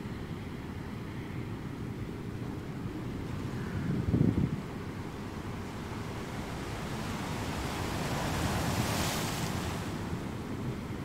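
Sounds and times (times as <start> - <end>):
gentle surf hissing: 0.0 - 11.0
wind rumbling on microphone: 0.0 - 11.0.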